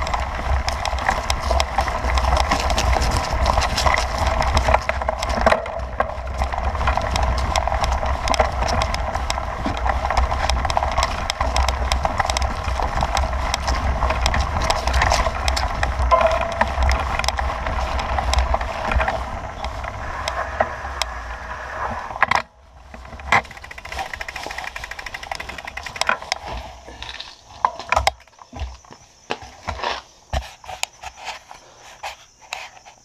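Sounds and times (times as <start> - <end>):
bicycle rattling over rough ground: 0.0 - 32.8
low rumble: 11.8 - 26.2.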